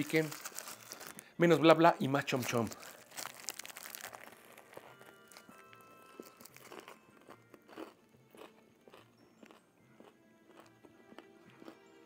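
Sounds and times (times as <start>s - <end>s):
foil wrapper crinkling: 0.0s - 7.0s
faint background music: 0.0s - 12.0s
crunching bite of fried chicken: 2.5s - 11.8s
quiet chewing: 2.7s - 12.0s.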